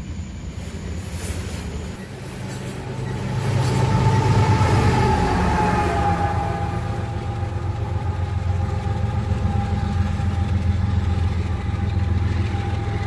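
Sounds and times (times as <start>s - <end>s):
locomotive high whine: 0.0s - 13.0s
locomotive low rumble: 0.0s - 13.0s.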